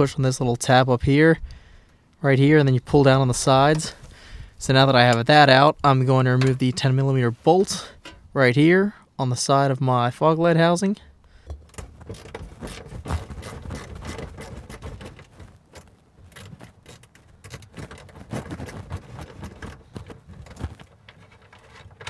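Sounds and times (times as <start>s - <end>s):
handling clicks and scrapes: 2.9s - 4.2s, 6.2s - 8.3s, 11.4s - 22.0s.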